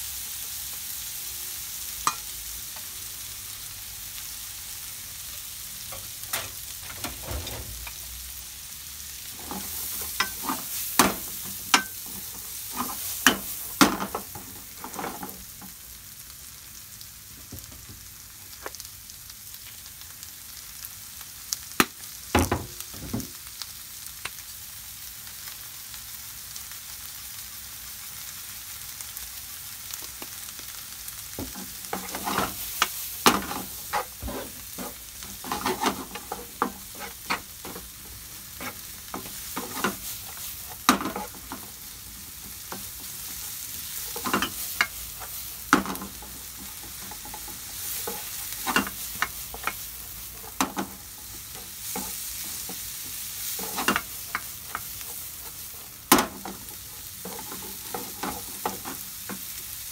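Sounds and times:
food sizzling in a frying pan: 0.0 - 59.9
wooden spatula scraping a pan: 9.3 - 15.4, 31.4 - 59.5.

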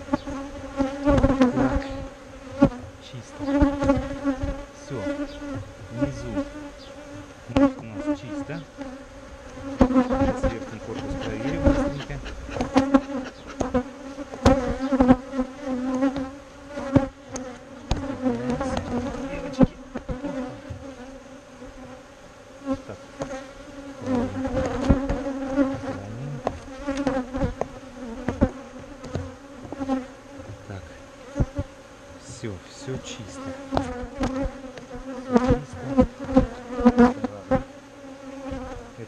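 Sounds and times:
honeybees buzzing: 0.0 - 39.0
wooden hive frames knocking: 0.3 - 5.7, 9.6 - 15.1, 15.9 - 21.1, 23.1 - 31.7, 33.4 - 37.7.

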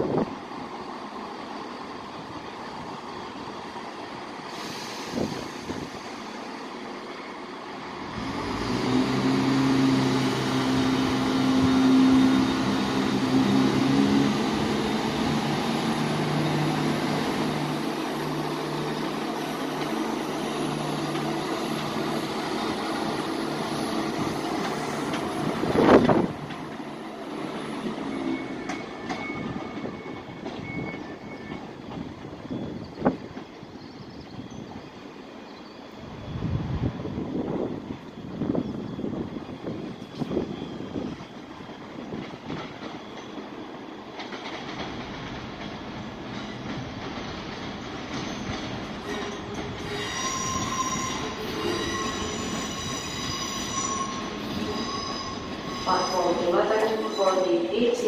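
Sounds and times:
train humming: 0.0 - 58.0
station background noise: 53.6 - 58.0.

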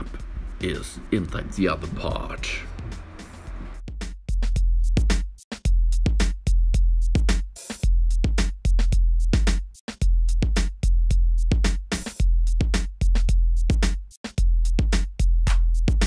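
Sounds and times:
deep bass notes: 0.0 - 5.1
drum machine beat: 0.0 - 16.0.

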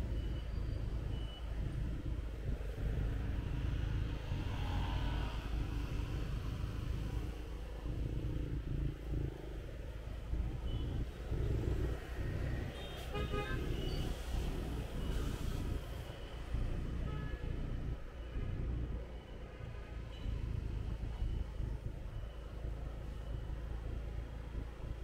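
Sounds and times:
traffic and road rumble: 0.0 - 25.0
vehicle horn toot: 12.8 - 14.1.

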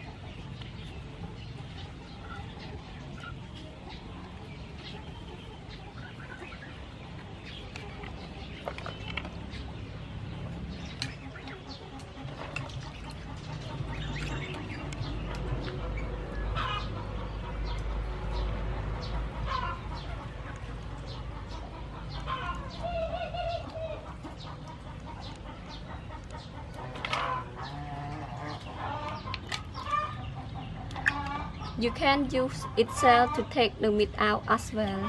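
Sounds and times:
chickens clucking: 0.0 - 35.0.

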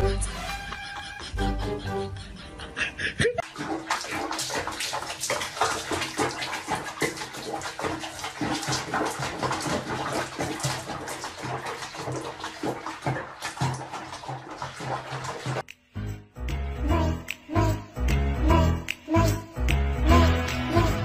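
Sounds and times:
water splashing in a basin: 3.4 - 15.8.

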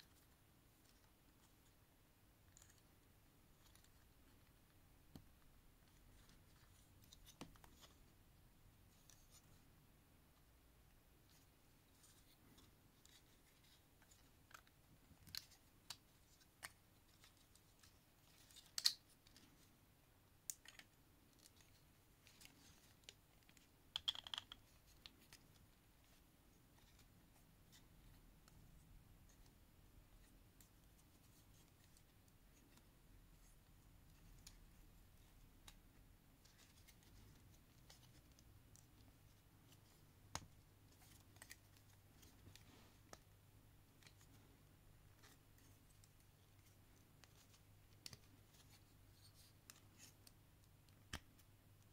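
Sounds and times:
plastic toy parts clicking: 23.9 - 24.6.

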